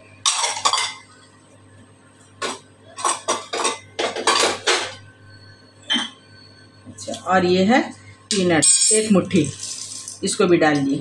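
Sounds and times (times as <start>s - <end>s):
steel utensils clinking and scraping: 8.3s - 10.2s.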